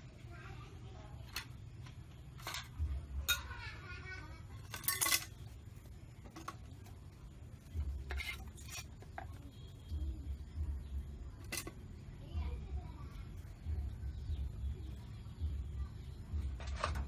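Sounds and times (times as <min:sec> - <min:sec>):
crockery and cutlery clinks: 0:04.6 - 0:05.3.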